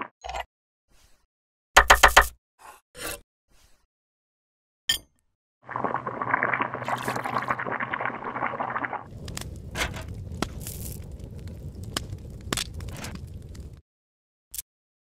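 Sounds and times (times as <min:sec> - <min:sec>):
dense gritty crackling: 0:05.7 - 0:13.8
charcoal fire crackling and popping: 0:06.4 - 0:13.8
low rumble: 0:09.1 - 0:13.8.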